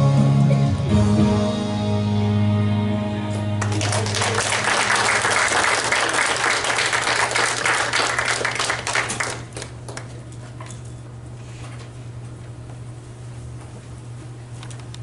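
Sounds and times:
congregation applauding: 0:03.6 - 0:10.1.

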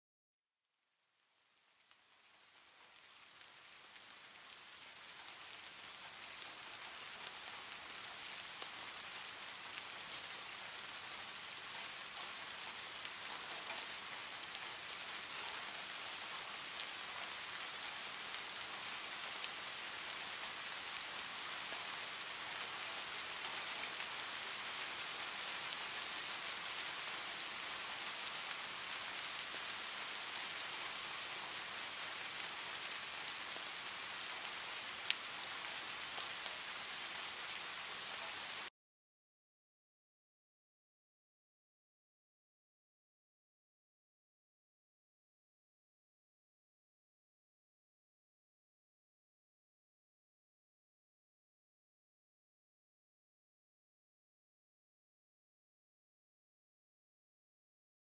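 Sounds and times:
rain on wet pavement: 0:01.6 - 0:38.7.

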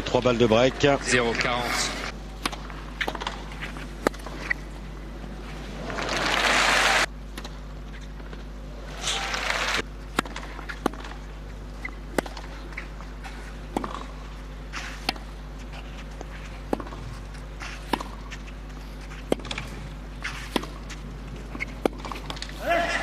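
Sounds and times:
steady low hum: 0:00.0 - 0:23.0
tennis ball bouncing: 0:02.3 - 0:04.7, 0:10.0 - 0:23.0
tennis ball off racket strings: 0:02.4 - 0:04.6, 0:10.1 - 0:11.2, 0:11.8 - 0:13.0, 0:13.7 - 0:22.6.

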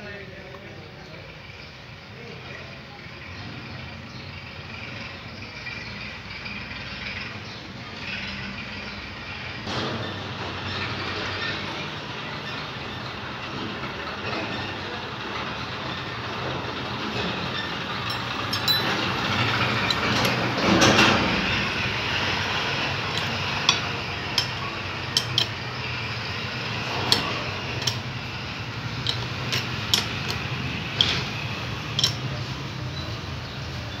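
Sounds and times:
steady background hum: 0:12.2 - 0:33.1
spanner clicking on metal nut: 0:17.5 - 0:32.6.

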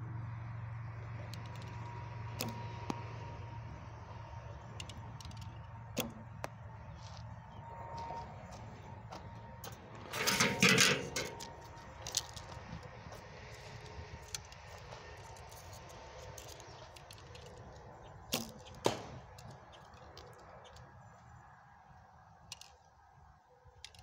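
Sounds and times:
arrow striking target: 0:06.0 - 0:06.3, 0:18.3 - 0:19.4.

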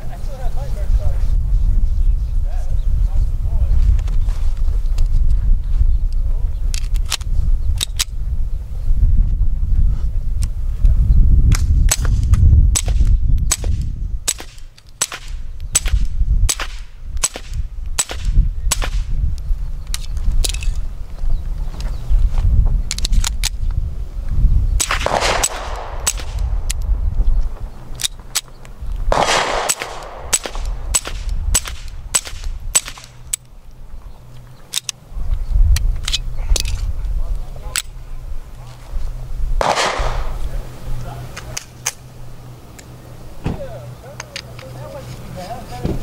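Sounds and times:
suppressed pistol shots: 0:11.9 - 0:19.1, 0:24.8 - 0:26.8, 0:29.1 - 0:33.4, 0:39.6 - 0:40.4.

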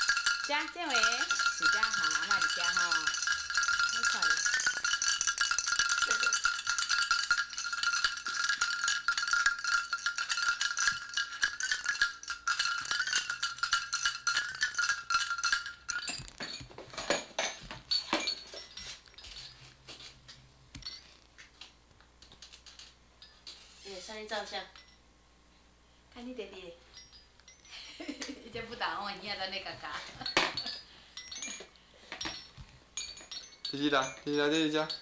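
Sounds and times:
high ringing tone: 0:00.0 - 0:16.8.

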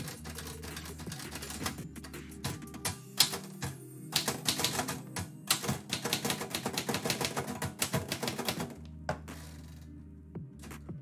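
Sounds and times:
typewriter keystrokes: 0:00.0 - 0:01.8, 0:02.4 - 0:08.8
background music: 0:00.0 - 0:11.0.

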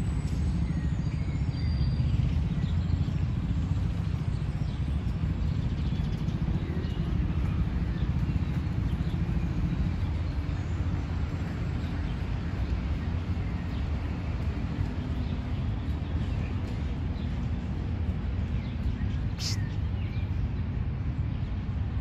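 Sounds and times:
city traffic rumble: 0:00.0 - 0:22.0
faint bird chirps: 0:19.1 - 0:20.3.

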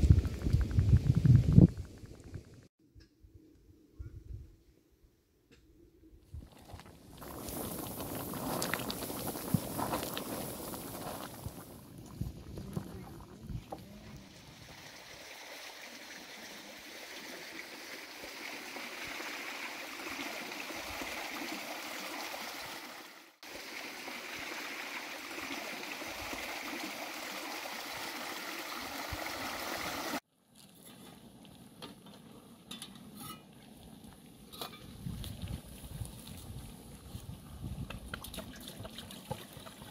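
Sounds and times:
stream running over stones: 0:06.4 - 0:30.2, 0:37.8 - 0:39.9.

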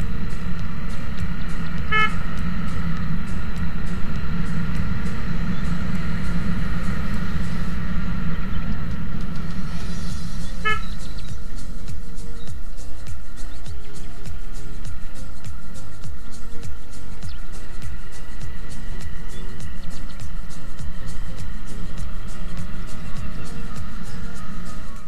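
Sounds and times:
motorcycle engine and wind rumble: 0:00.0 - 0:25.0
horn toots: 0:01.8 - 0:02.4, 0:10.4 - 0:11.1.

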